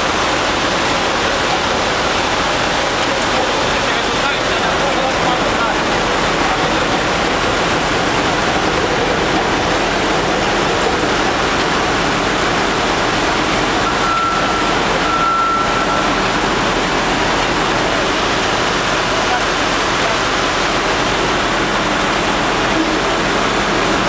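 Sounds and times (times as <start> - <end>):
engine-room machinery roar: 0.0 - 24.0
thin high tone: 13.8 - 16.4.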